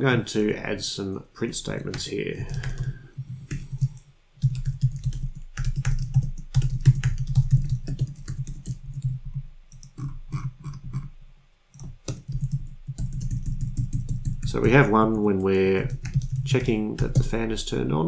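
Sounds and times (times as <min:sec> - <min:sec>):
keyboard typing clicks: 0:01.9 - 0:02.9.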